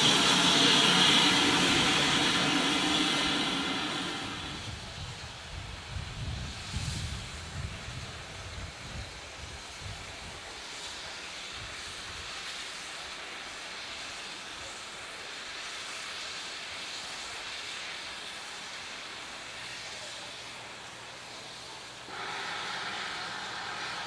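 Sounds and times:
steam locomotive whistle: 0:00.0 - 0:04.8, 0:22.1 - 0:24.0
steady hiss: 0:00.0 - 0:24.0.

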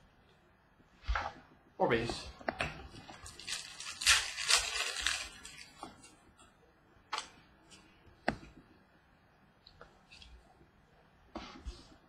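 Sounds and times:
cards rustling: 0:03.2 - 0:05.8.

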